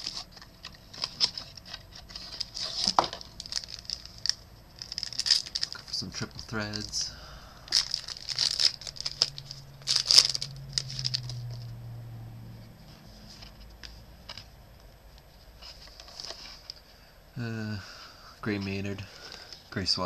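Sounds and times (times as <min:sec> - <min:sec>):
foil wrapper crinkling and tearing: 0:00.0 - 0:11.7
cards clicking and rustling: 0:07.7 - 0:11.6.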